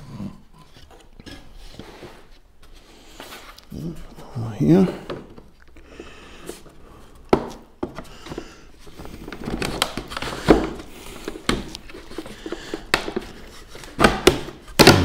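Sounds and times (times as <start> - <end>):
boards knocking together: 7.3 - 8.5, 9.3 - 15.0.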